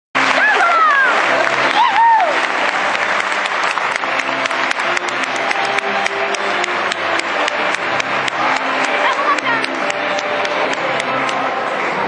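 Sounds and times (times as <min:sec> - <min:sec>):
crowd applauding: 0:00.2 - 0:12.0.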